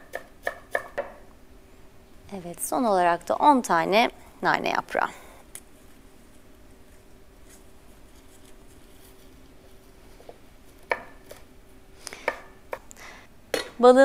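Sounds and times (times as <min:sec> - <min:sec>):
knife chopping on wooden board: 0:00.0 - 0:01.2, 0:10.8 - 0:11.4.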